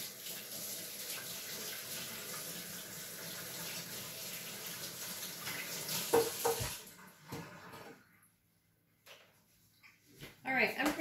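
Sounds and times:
water running from tap: 0.0s - 7.9s.

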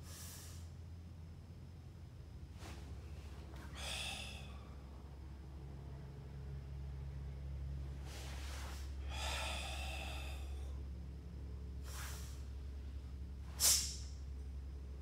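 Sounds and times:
sharp forced exhale: 0.0s - 0.7s, 3.6s - 4.8s, 8.0s - 10.8s, 11.8s - 12.6s, 13.5s - 14.1s
steady low hum: 0.0s - 15.0s
person breathing: 2.6s - 5.0s, 8.0s - 11.0s, 11.8s - 13.1s.

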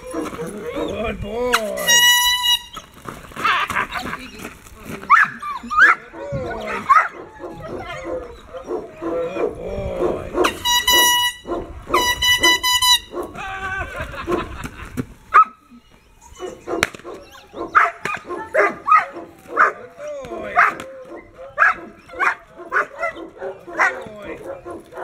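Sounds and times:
air horn blasts: 1.8s - 2.7s, 10.5s - 13.1s
puppy barking and growling: 5.1s - 13.4s, 16.4s - 25.0s.

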